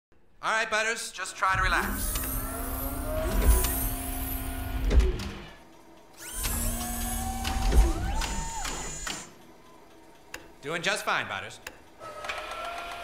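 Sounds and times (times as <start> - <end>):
machine clunk: 1.6 - 5.6, 6.3 - 9.3
whirring whining motor: 1.6 - 5.6, 6.2 - 9.4.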